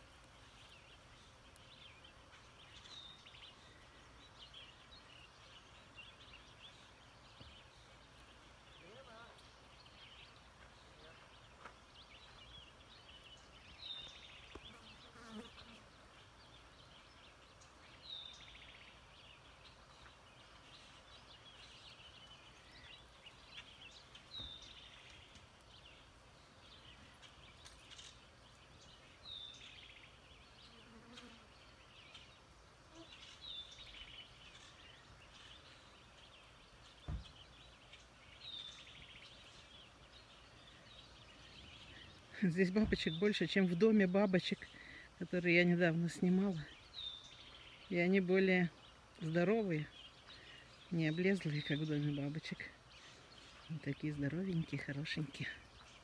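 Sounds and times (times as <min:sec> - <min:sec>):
thump: 0:37.0 - 0:37.3.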